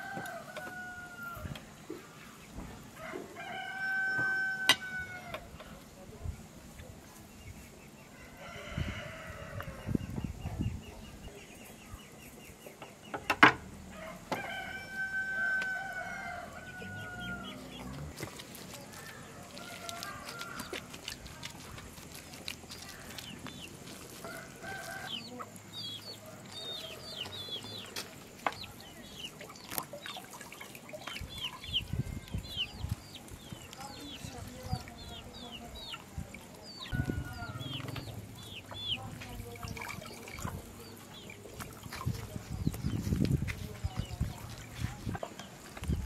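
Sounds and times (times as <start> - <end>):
rooster crowing: 0.0 - 1.6, 3.0 - 5.5, 13.9 - 17.7, 19.4 - 20.9, 36.9 - 38.2
small birds chirping: 9.4 - 13.4, 16.6 - 46.0
chicken calls: 36.8 - 41.8.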